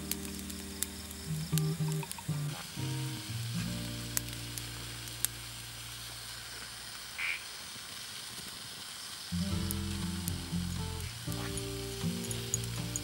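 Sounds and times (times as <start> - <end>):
campfire hissing and popping: 0.0 - 13.0
soft background music: 9.4 - 13.0.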